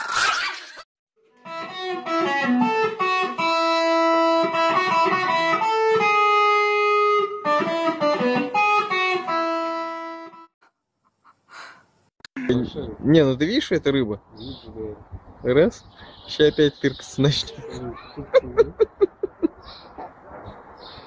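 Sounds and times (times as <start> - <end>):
electric guitar melody: 1.3 - 10.5.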